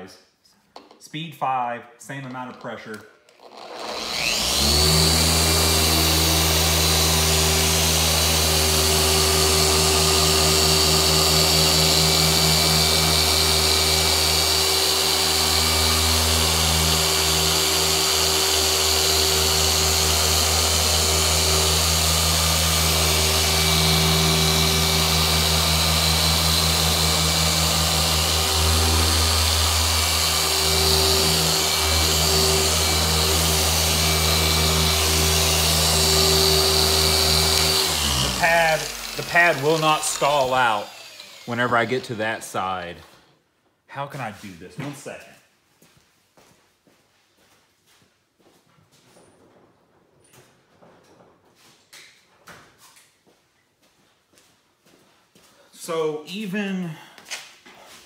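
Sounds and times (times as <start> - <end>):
polisher motor hum and whine: 3.6 - 41.6.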